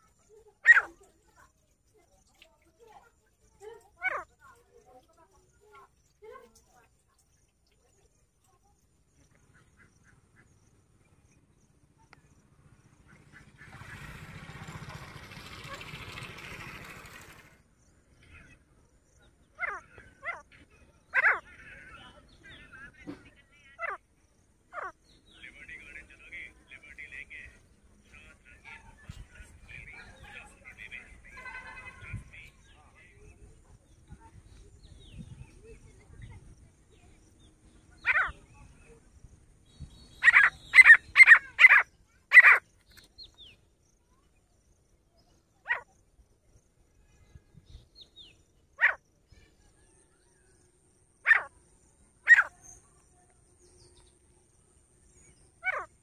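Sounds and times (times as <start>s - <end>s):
faint chirping twitters: 0.0s - 13.4s, 15.4s - 56.0s
bird calling harsh notes: 40.1s - 42.6s, 52.2s - 52.6s, 55.5s - 56.0s.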